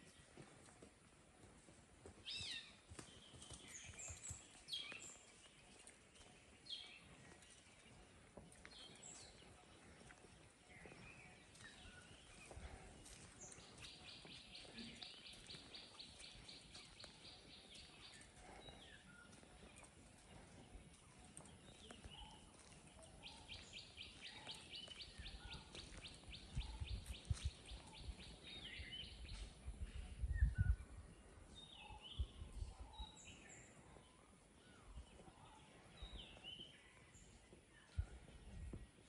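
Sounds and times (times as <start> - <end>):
birds calling and chirping: 2.1 - 39.0
wind buffeting microphone: 25.1 - 33.3, 37.9 - 39.0.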